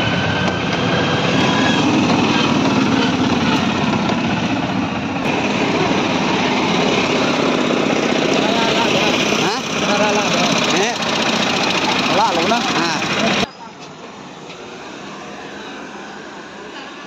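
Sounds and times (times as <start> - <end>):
small engine puttering: 5.3 - 13.5.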